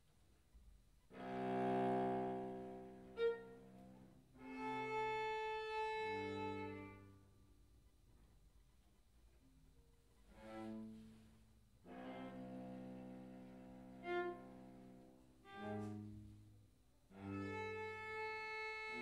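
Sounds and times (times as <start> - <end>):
viola and cello bowed notes: 1.1 - 7.4, 10.3 - 19.0.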